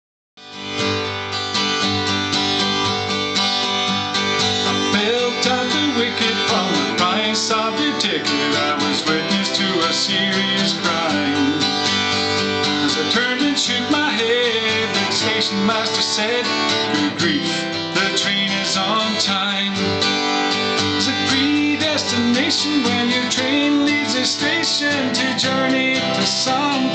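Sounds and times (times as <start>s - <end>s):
acoustic guitar strumming: 0.4s - 26.9s.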